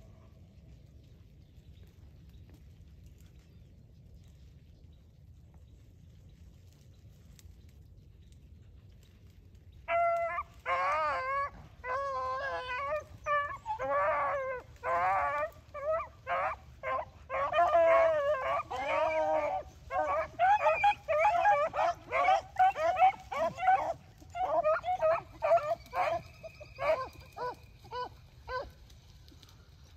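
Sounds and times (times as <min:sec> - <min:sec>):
hounds baying: 0:09.8 - 0:29.5.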